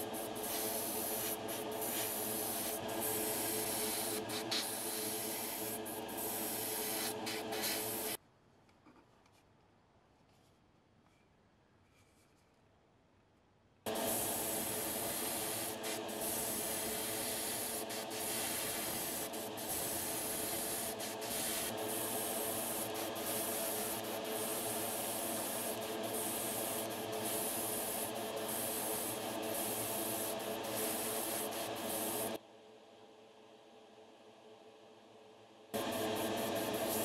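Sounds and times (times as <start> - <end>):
airbrush spraying hiss: 0.0 - 8.2, 13.9 - 32.4, 35.8 - 37.0
steady hum: 0.0 - 8.2, 13.9 - 37.0.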